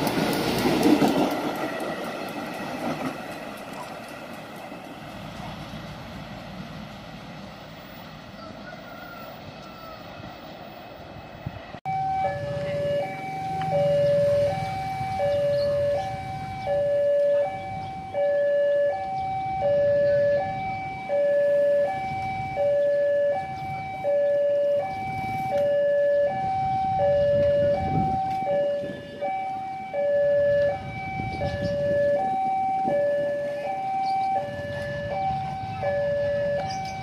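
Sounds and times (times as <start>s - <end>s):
low rumble of street traffic: 0.0s - 37.0s
level crossing two-note alarm: 11.9s - 37.0s.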